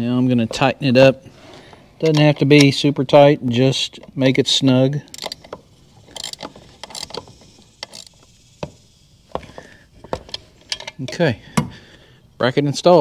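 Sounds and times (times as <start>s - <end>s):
metallic clicks: 2.0s - 2.8s, 5.0s - 8.9s, 10.2s - 11.3s
ratchet wrench clicking: 5.0s - 11.2s.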